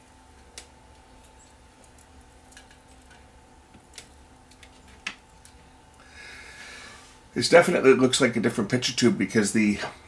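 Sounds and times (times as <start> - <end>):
faint steady hum: 0.0 - 10.0.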